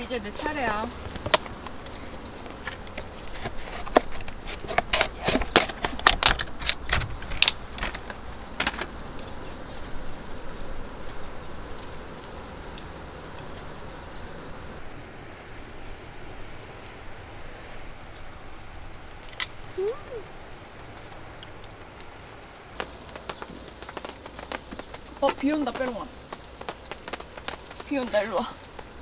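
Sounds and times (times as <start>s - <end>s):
plastic clamshell crackling: 2.5s - 8.9s.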